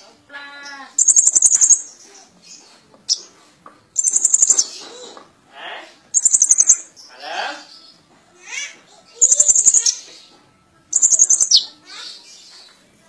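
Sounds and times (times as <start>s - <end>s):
high-pitched bird trills: 0.8s - 2.0s, 4.0s - 4.8s, 6.2s - 6.9s, 9.2s - 10.1s, 10.9s - 12.2s
sharp bird chirp: 1.0s - 1.9s, 4.0s - 4.7s, 6.2s - 6.9s, 10.9s - 11.7s.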